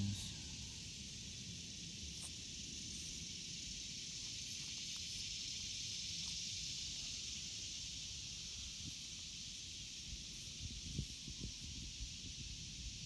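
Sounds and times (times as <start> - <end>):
steady high hiss: 0.0 - 13.0
wind rumble on microphone: 10.1 - 13.0.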